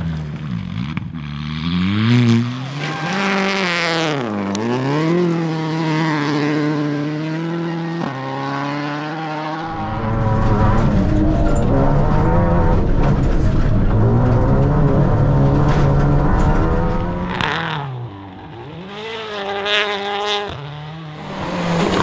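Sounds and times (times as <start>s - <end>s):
rally car engine revving: 0.0s - 22.0s.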